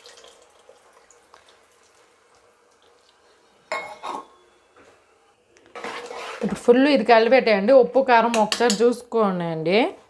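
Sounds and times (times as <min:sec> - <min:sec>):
water dripping into pot: 0:00.0 - 0:02.9.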